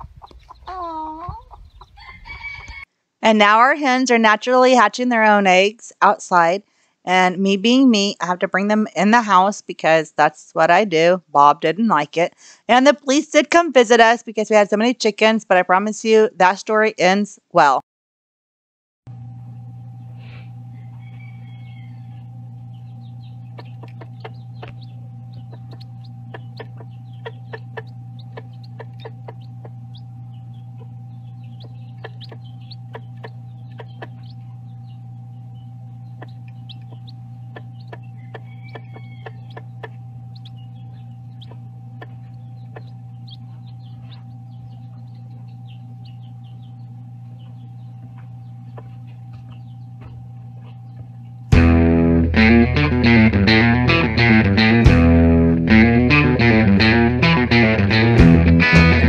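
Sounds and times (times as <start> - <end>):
chicken calls: 0.0 - 2.9, 20.2 - 51.3
low electrical hum: 0.0 - 17.8, 19.1 - 59.0
chicks pecking on glass dish: 22.8 - 35.0, 36.0 - 51.3.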